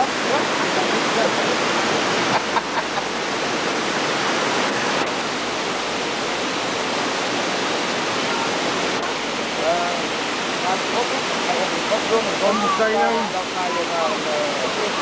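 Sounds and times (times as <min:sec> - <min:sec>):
flowing water rushing: 0:00.0 - 0:15.0
faint voices: 0:10.6 - 0:15.0.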